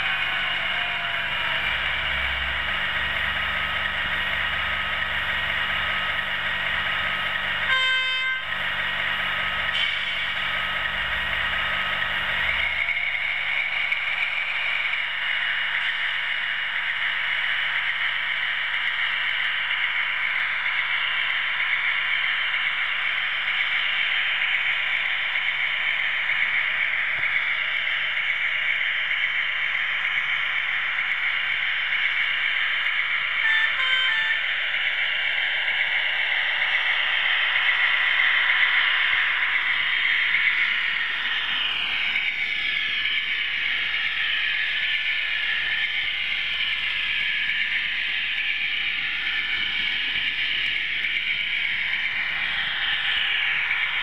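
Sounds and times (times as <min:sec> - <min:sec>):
model train whirring on rails: 0:00.0 - 0:54.0
brief double tone: 0:07.7 - 0:08.4, 0:33.4 - 0:34.4.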